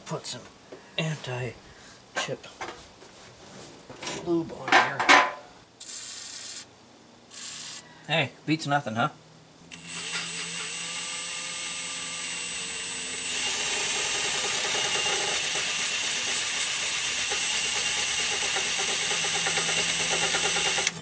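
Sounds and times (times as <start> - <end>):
electric drill whining: 5.8 - 6.7, 7.3 - 7.8, 9.7 - 21.0.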